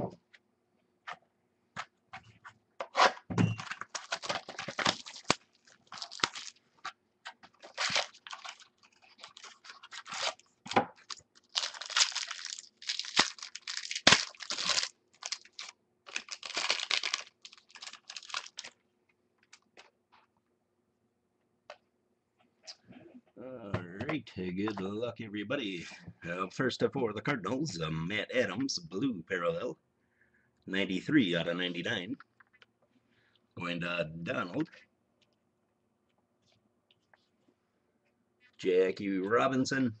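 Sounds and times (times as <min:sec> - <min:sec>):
plastic wrapping crinkling: 0:03.6 - 0:18.8.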